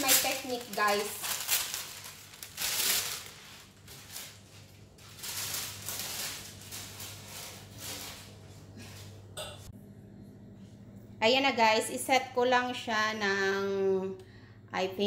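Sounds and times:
baking paper crinkling: 0.0s - 9.2s
low steady hum: 0.0s - 15.0s.

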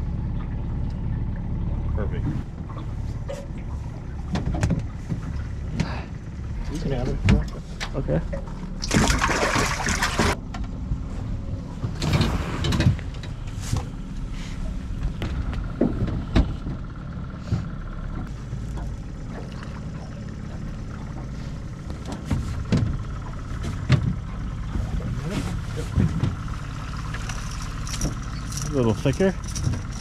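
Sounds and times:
low rumble: 0.0s - 30.0s
fish splashing in water: 8.7s - 10.4s
knocks on boat: 21.9s - 25.0s.

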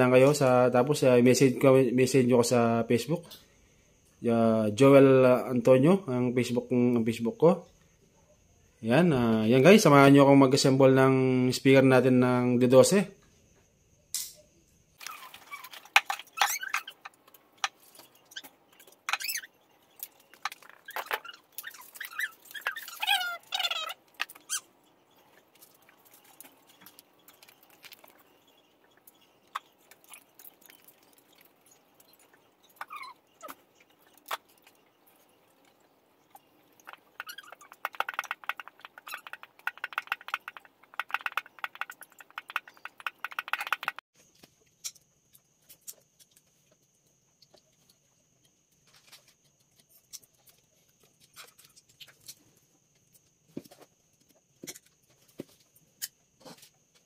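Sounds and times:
squeaky glides: 20.5s - 25.2s.

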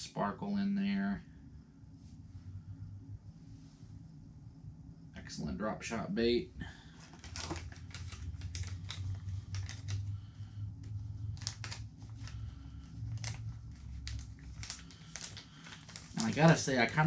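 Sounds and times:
low steady hum: 0.0s - 17.0s
plastic packaging crinkling: 6.9s - 17.0s.

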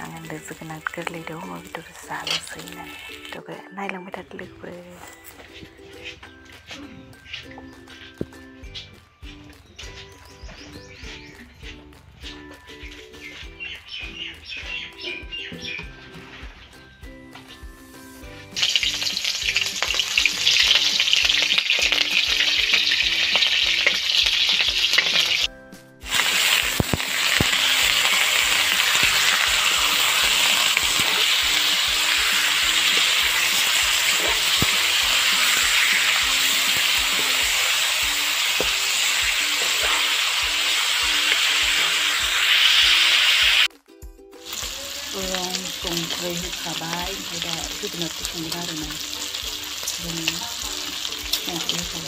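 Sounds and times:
meat sizzling in hot oil: 0.0s - 3.4s, 17.8s - 43.7s, 44.4s - 52.0s
faint background music with beat: 0.0s - 52.0s.

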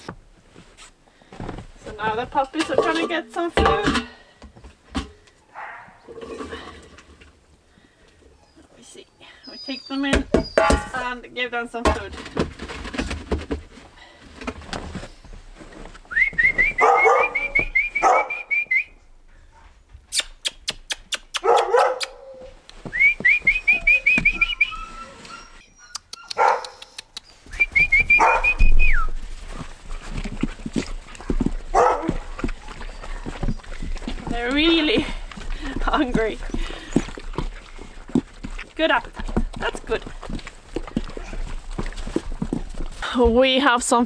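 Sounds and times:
puppies whining and yipping: 9.4s - 10.7s, 23.5s - 29.0s, 31.4s - 34.9s
high whistling chirps: 22.9s - 26.4s.

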